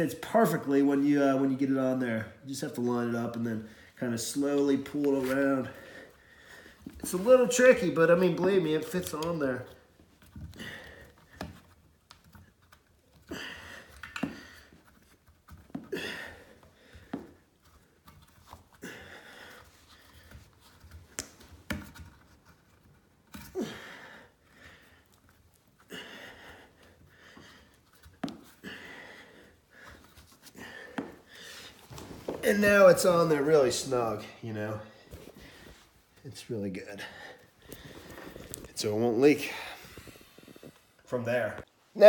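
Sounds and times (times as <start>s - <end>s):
rubber gasket rubbing and handling: 37.4s - 41.0s.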